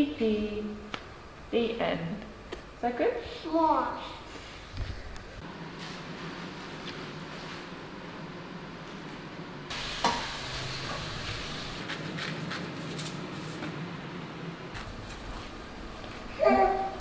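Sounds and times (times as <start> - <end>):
fish sizzling in a pan: 9.7 - 11.8.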